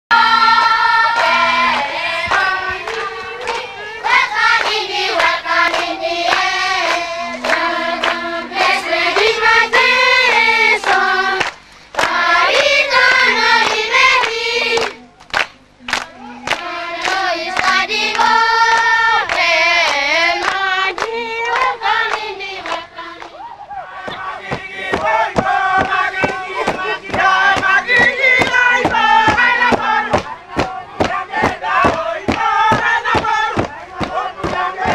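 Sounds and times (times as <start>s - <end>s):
sharp claps or knocks: 0.6s - 9.4s, 10.2s - 23.4s, 24.0s - 34.9s
group of voices chanting: 16.0s - 34.9s.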